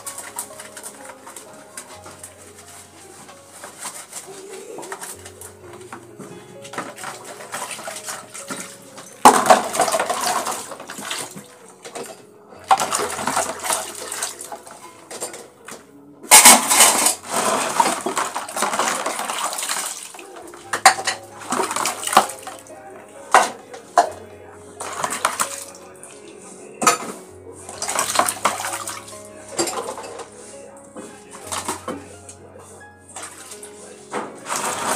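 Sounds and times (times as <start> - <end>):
metal dishes clinking together: 6.2 - 22.7, 23.3 - 24.2, 26.8 - 30.4
scrubber rasping over metal: 16.3 - 20.0.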